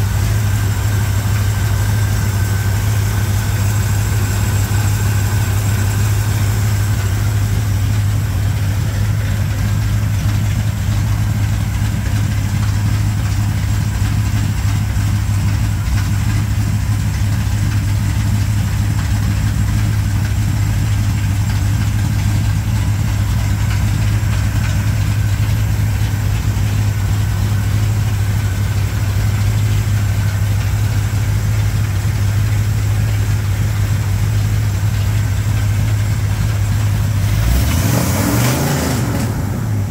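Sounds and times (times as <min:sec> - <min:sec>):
engine idling steadily: 0:00.0 - 0:39.9.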